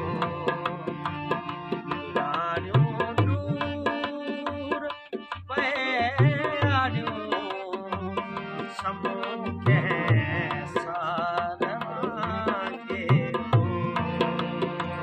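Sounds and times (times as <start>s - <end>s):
hand drum beating a rhythm: 0.0s - 4.7s
harmoniums holding chords: 0.0s - 15.0s
man singing: 0.0s - 15.0s.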